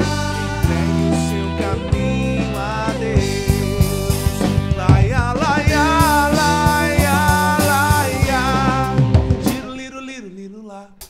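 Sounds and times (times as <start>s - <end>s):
live rock band playing: 0.0s - 9.8s.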